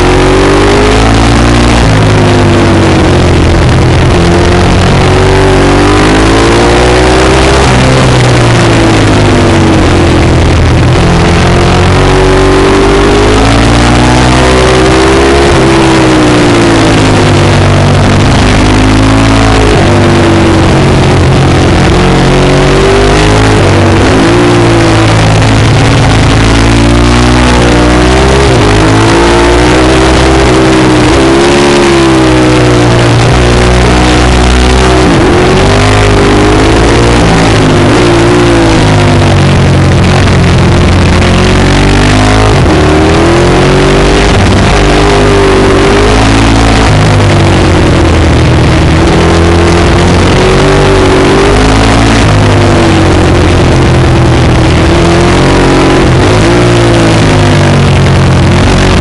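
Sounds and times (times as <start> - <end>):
motorbike engine revving: 0.0 - 59.0.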